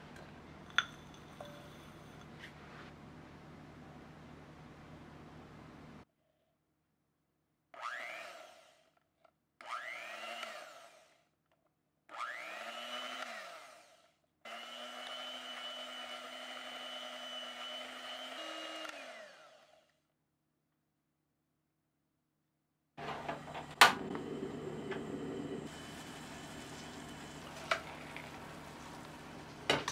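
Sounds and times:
electric hand mixer whining: 12.1s - 19.9s, 23.0s - 29.9s.

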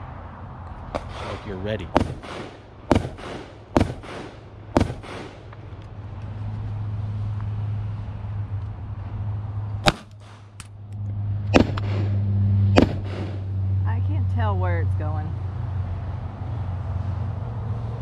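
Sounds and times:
steady low hum: 0.0s - 18.0s
pistol shots with echo: 2.0s - 5.4s, 9.8s - 10.4s, 11.5s - 12.1s, 12.8s - 13.4s.

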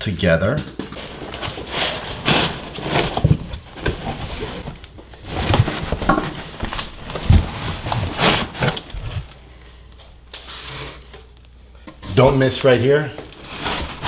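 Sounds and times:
foam scraping against cardboard: 1.0s - 5.8s, 10.4s - 11.2s, 13.4s - 14.0s.

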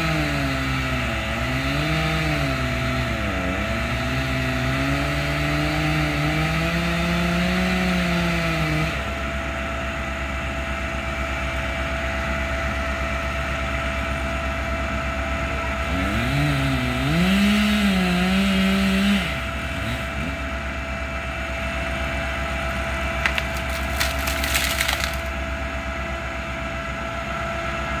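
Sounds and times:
truck engine revving: 0.0s - 9.4s, 15.6s - 25.3s
tree trunk cracking and splintering: 22.5s - 25.4s.

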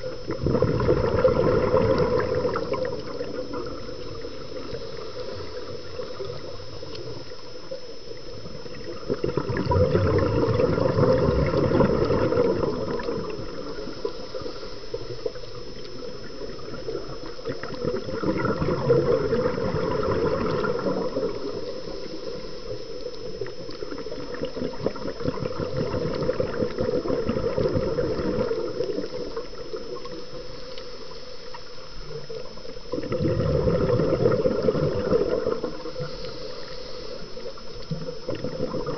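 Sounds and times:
underwater bubbling and gurgling: 0.0s - 38.9s.

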